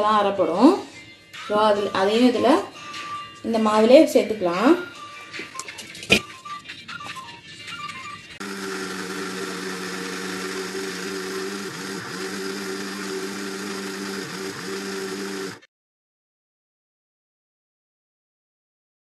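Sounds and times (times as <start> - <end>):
mixer grinder motor grinding: 8.4 - 15.7.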